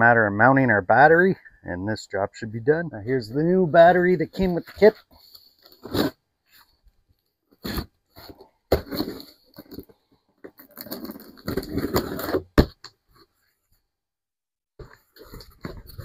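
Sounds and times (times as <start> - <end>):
cardboard scraping: 3.8 - 6.7, 7.5 - 13.4, 14.8 - 16.0
box cutter slitting packing tape: 10.7 - 12.5.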